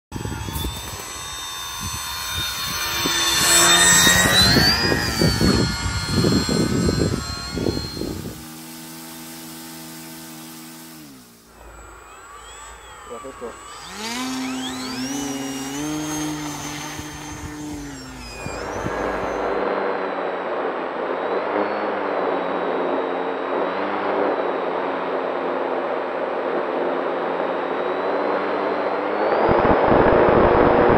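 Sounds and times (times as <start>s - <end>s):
rushing wind: 0.1s - 8.9s
model plane propeller whining: 0.1s - 19.6s
low hum of several tones: 0.1s - 30.9s.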